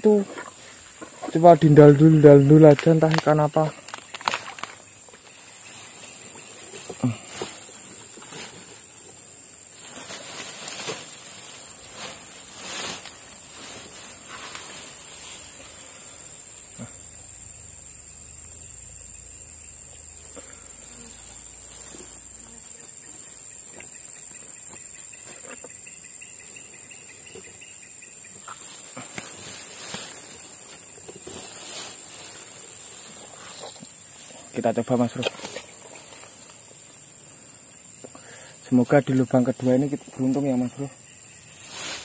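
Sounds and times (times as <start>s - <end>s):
insects chirring: 0.0s - 42.0s
hands rustling dry grass: 0.1s - 16.7s, 28.2s - 37.1s, 39.6s - 42.0s.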